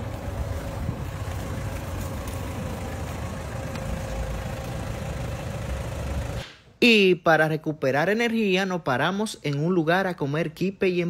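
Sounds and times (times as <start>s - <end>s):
engine idling rumble: 0.0s - 6.5s.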